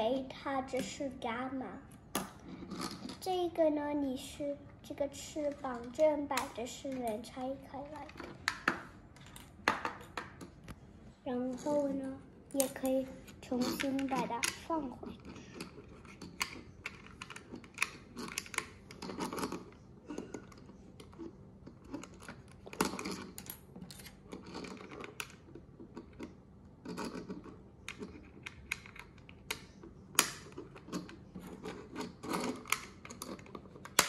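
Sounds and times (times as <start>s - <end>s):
plastic toy parts clicking: 5.5s - 10.7s, 12.5s - 34.0s.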